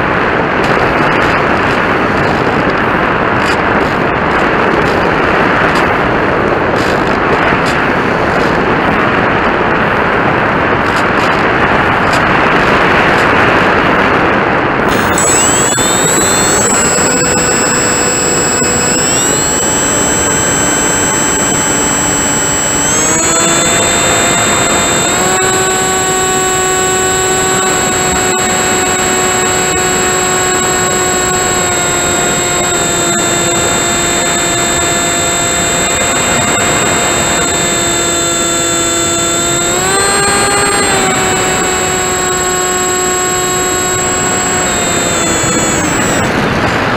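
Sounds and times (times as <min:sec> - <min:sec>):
model airplane motor whine: 0:00.0 - 0:09.0, 0:14.8 - 0:46.9.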